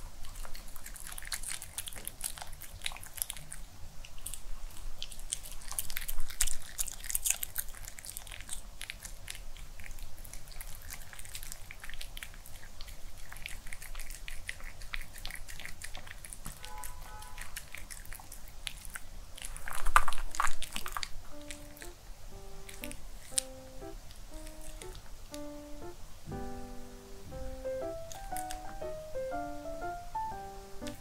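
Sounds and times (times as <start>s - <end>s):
dog chewing and crunching: 0.0s - 22.0s, 22.6s - 25.1s, 28.1s - 28.7s
mouth clicks and licks: 0.2s - 22.0s, 22.6s - 23.6s.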